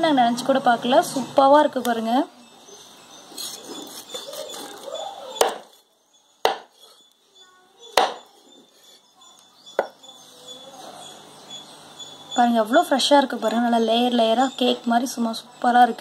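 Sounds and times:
knife chopping on cutting board: 5.4 - 5.7, 6.5 - 6.8, 8.0 - 8.2.

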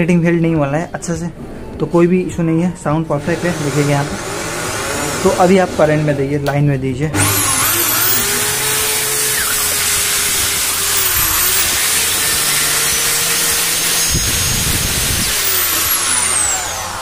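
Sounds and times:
electric drill motor whine: 7.2 - 17.0.

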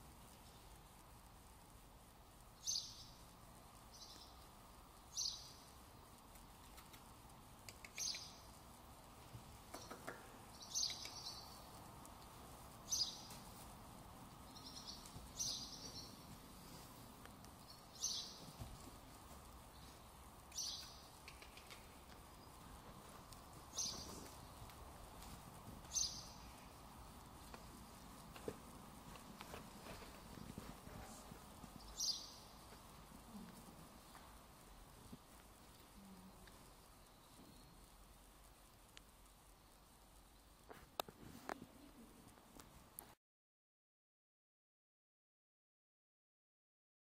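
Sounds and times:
faint background hum: 0.0 - 43.2
small bird chirping: 2.6 - 3.3, 3.9 - 5.7, 6.6 - 8.6, 9.7 - 11.8, 12.8 - 13.3, 14.4 - 16.3, 17.6 - 18.6, 19.5 - 22.7, 23.5 - 24.7, 25.9 - 27.2, 31.7 - 32.6.

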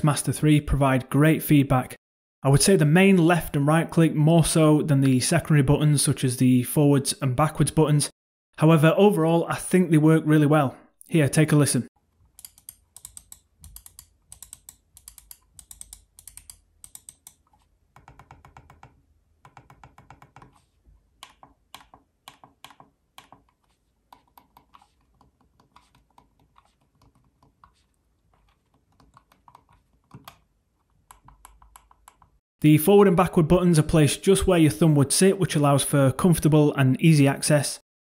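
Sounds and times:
mouse buttons clicking: 12.4 - 20.6.

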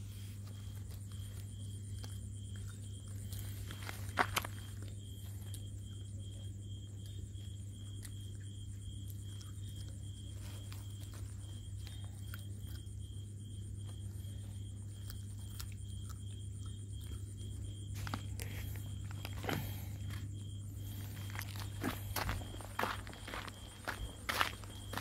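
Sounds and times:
puppies chewing on plastic sack: 0.0 - 5.4, 17.1 - 22.5.

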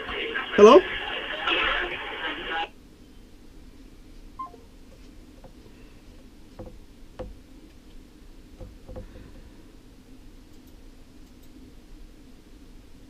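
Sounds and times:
two-note electronic beep: 4.4 - 4.7.

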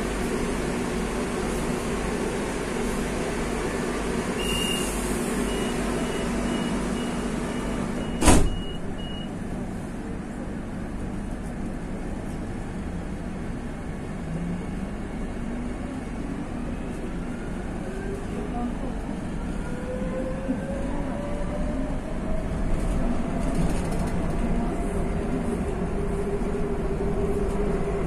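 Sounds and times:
train humming: 0.0 - 8.1, 8.8 - 28.0
train doors thumping shut: 8.1 - 8.8.

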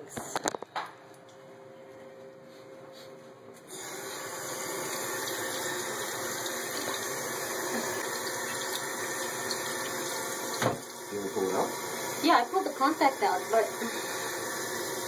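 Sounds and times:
tap water running into sink: 3.7 - 15.0
water tap turned on: 3.7 - 15.0.

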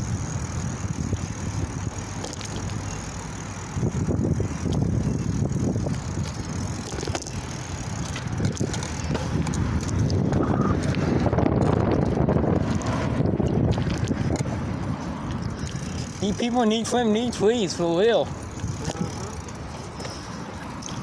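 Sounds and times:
bicycle clicks and rattles: 0.0 - 21.0
bicycle tyres rumbling on concrete: 0.0 - 21.0
wind on microphone: 3.7 - 16.2.

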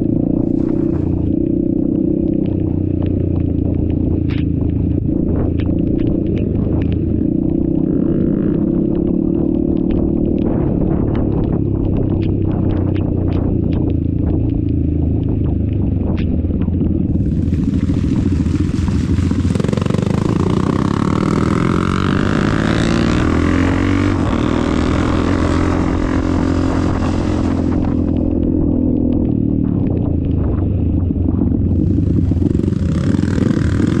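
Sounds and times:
dirt bike engines running: 0.0 - 34.0
engine revving up: 17.1 - 28.1.

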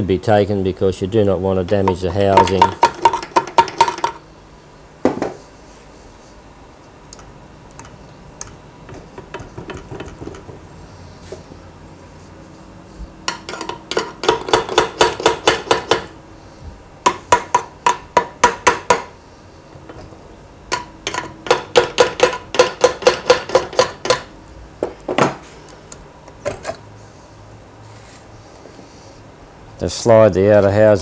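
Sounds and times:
mallet tapping metal housing: 1.7 - 4.2, 7.8 - 10.7.

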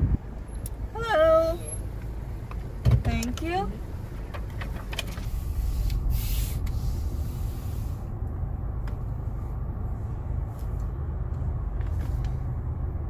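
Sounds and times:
car engine idling: 0.0 - 13.0
outside hiss: 3.7 - 8.3.

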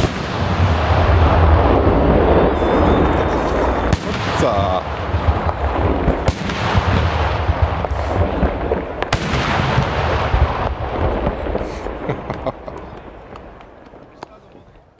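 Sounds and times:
low rumble: 0.0 - 9.0
sharp firework bangs: 0.0 - 14.0.

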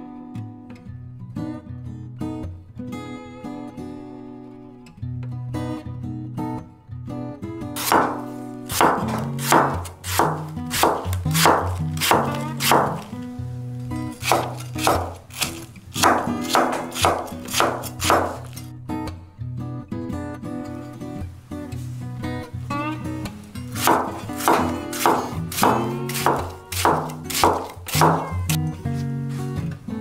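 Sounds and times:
acoustic guitar music: 0.0 - 30.0
knife slicing apple on board: 7.8 - 13.3, 14.1 - 18.7, 23.8 - 28.6.

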